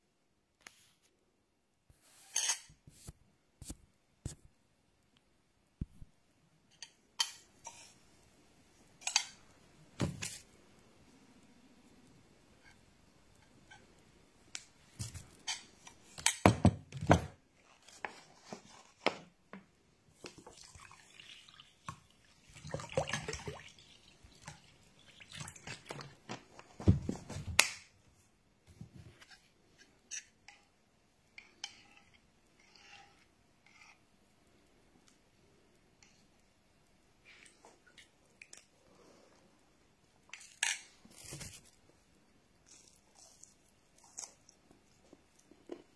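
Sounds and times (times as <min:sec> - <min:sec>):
water pouring into bowl: 0:20.3 - 0:26.0.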